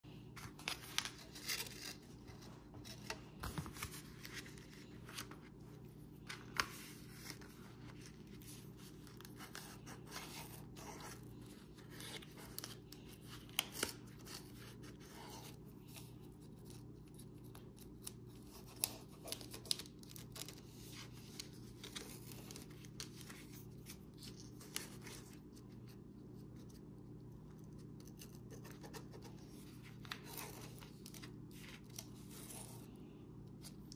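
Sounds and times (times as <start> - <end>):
contact paper crinkling: 0.1 - 33.9.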